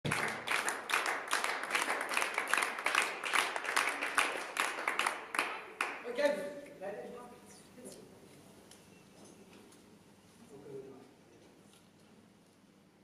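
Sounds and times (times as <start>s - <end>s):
spectators clapping in rhythm: 0.0s - 6.3s.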